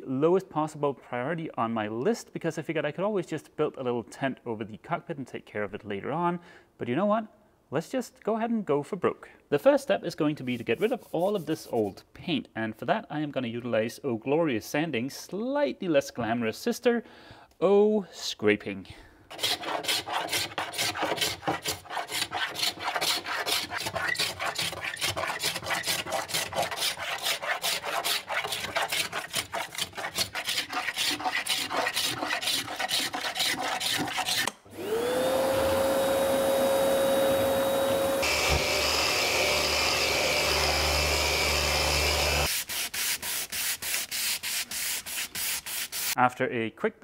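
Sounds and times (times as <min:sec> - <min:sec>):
scraper scraping paint: 0:10.4 - 0:11.9, 0:19.3 - 0:34.5, 0:41.8 - 0:46.2
shop vacuum motor whine: 0:34.7 - 0:42.5.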